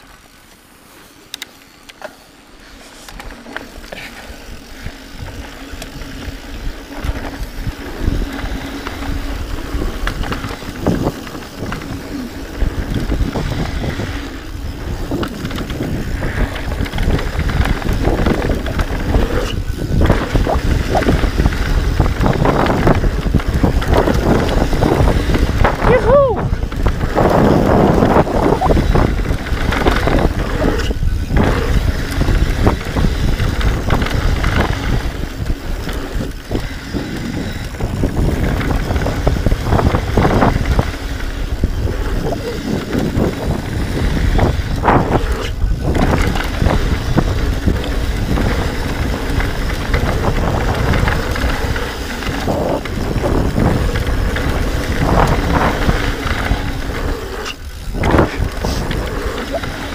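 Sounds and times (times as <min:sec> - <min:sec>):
bike rattling: 0:00.0 - 0:59.9
tyres rushing on dirt: 0:00.0 - 0:59.9
wind buffeting microphone: 0:03.7 - 0:59.9.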